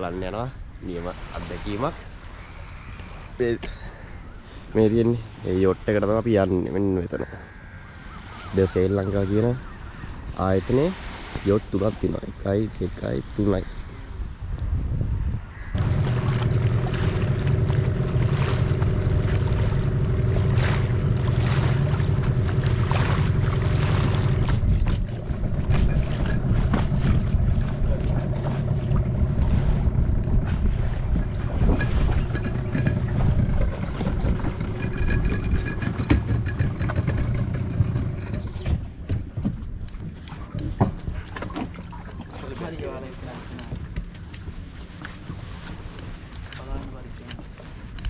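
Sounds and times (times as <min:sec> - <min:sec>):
water noise: 0:00.0 - 0:48.0
wind buffeting microphone: 0:08.2 - 0:42.0
boat engine running: 0:15.6 - 0:48.0.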